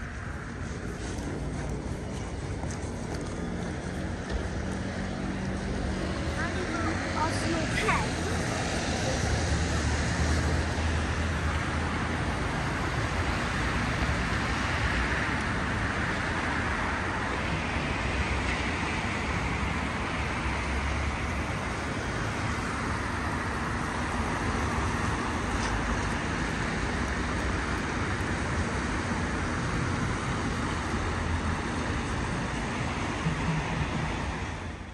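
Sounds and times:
low traffic rumble: 0.0 - 34.9
passing vehicles: 0.0 - 34.9.

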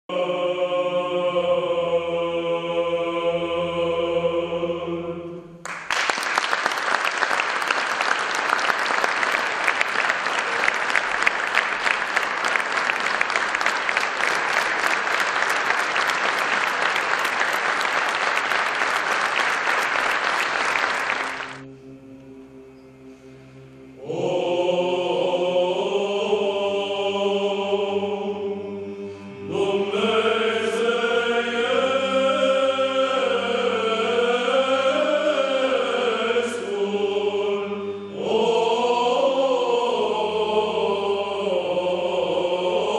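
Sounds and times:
male choir singing a chant: 0.1 - 5.4, 23.8 - 42.9
audience applause: 5.6 - 21.6.

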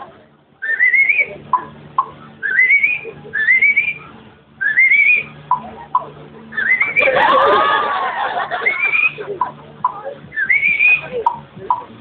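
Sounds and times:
warbling whistling: 0.6 - 1.3, 2.0 - 5.6, 6.5 - 7.2, 8.5 - 9.2, 10.3 - 11.1.

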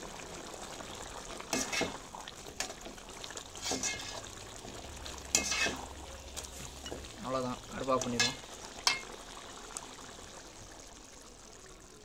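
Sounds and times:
ladle scraping metal pot: 1.5 - 2.0, 3.6 - 4.3, 5.3 - 5.9.

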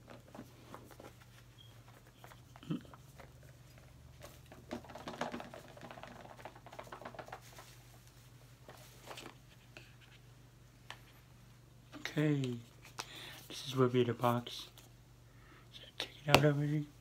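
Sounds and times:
packaging clicks and rustles: 0.0 - 7.8.

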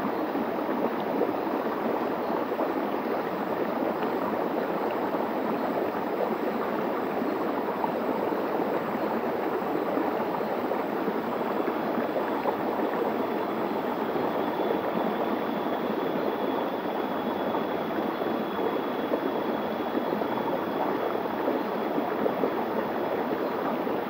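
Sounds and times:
stream flowing over rock: 0.0 - 24.0.

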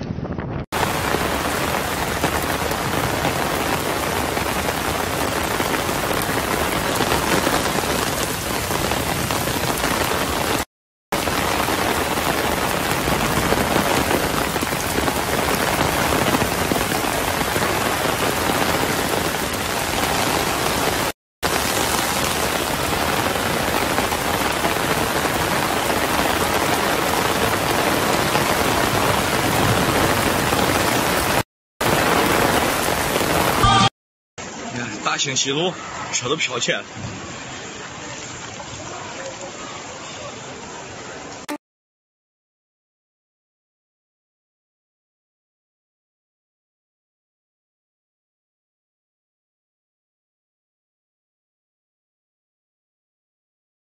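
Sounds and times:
heavy rain on water and foliage: 0.7 - 34.7, 36.6 - 41.6.

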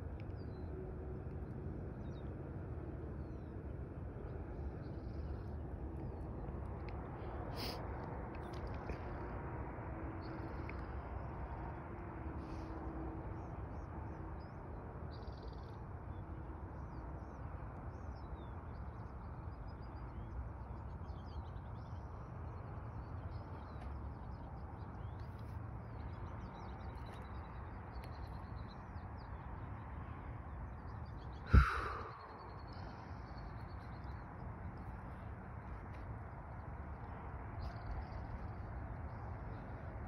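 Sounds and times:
low wind rumble: 0.0 - 40.0
small birds chirping: 16.8 - 39.9.

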